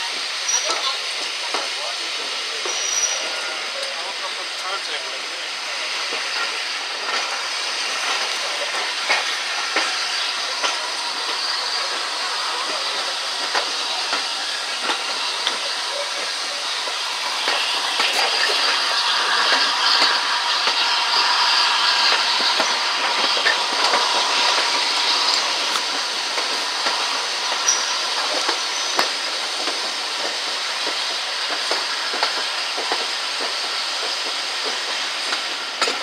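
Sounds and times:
steam train rushing hiss: 0.0 - 36.0
wheels clicking over rail joints: 22.0 - 36.0.

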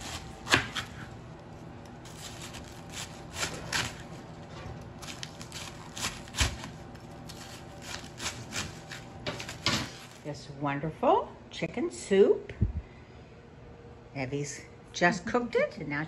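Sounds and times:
knife slicing cabbage: 0.0 - 1.2, 2.0 - 4.3, 5.0 - 10.2.

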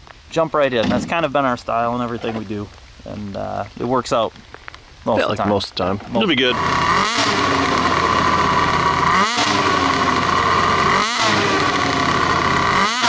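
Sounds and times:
snowmobile engine at high revs: 6.2 - 13.0.

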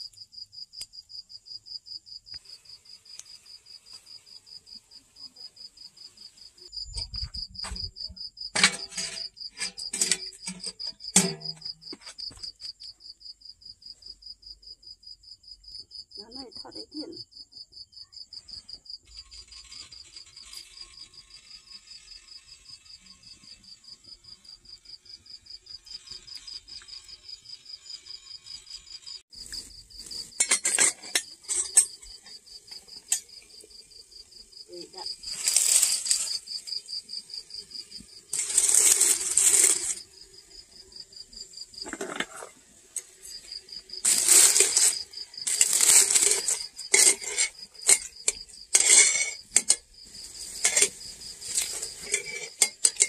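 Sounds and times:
crickets chirping: 0.0 - 53.0
metal pot and lid clattering: 8.5 - 12.1, 30.3 - 33.4, 41.8 - 49.9, 50.5 - 53.0.

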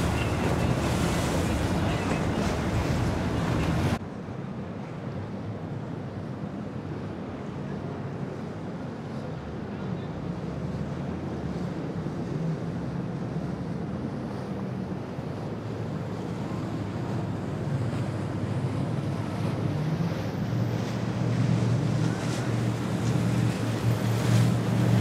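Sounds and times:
outboard motor hum: 0.0 - 4.0, 11.3 - 25.0
water rushing off hull: 0.0 - 4.0, 8.2 - 25.0.

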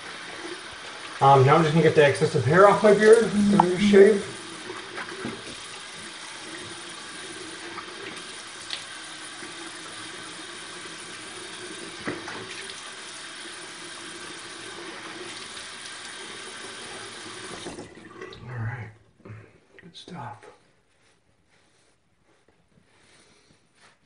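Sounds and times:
water running from sink tap: 0.0 - 18.4.

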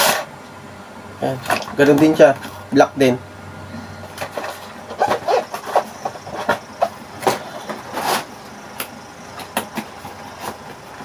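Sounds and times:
cardboard scraping rustle: 4.1 - 8.5, 9.4 - 11.0
cardboard boxes knocking and rustling: 4.2 - 8.3, 9.4 - 11.0.

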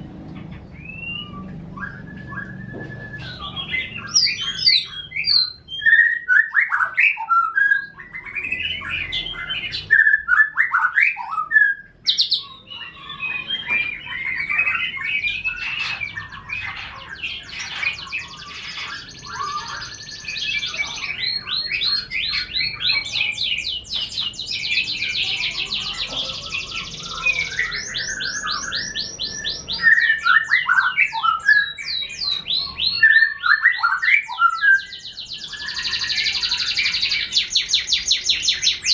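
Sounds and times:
birds singing: 0.0 - 38.9
loud whistled phrases: 0.8 - 16.6, 26.5 - 37.3.

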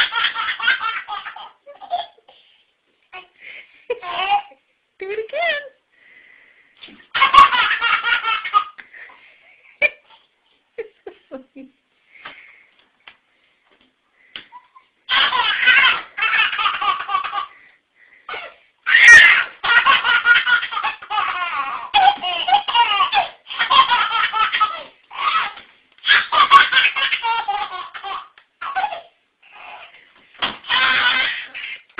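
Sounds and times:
baby laughing: 0.0 - 2.3, 3.9 - 4.6, 7.1 - 8.8, 14.5 - 17.6, 18.3 - 30.0, 30.6 - 31.9.

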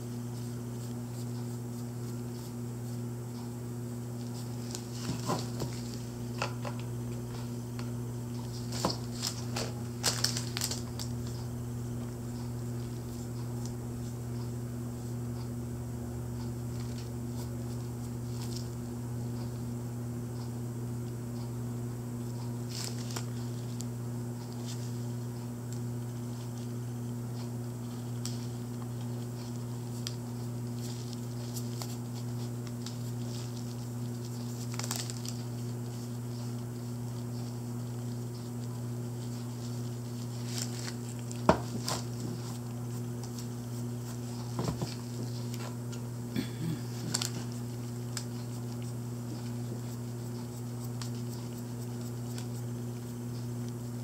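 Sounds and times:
scratchy rustles of gloved hands: 47.0 - 53.8.

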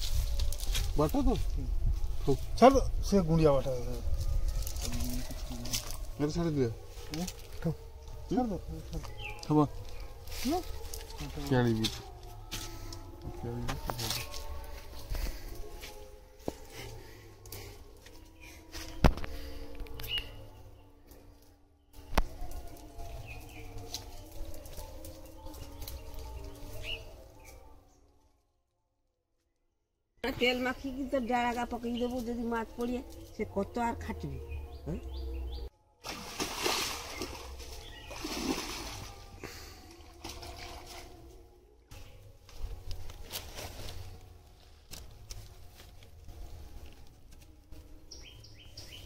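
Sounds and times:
bird chirp: 8.9 - 10.2, 25.3 - 27.7, 34.2 - 35.7, 48.1 - 49.0
water splashing around wading legs: 36.0 - 41.2.

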